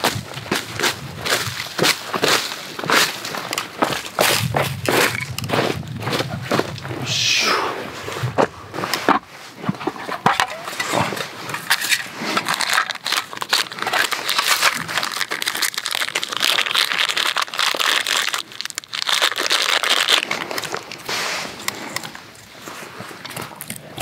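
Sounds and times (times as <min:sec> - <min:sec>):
dry bark crinkling: 0:00.0 - 0:06.9, 0:08.8 - 0:24.0.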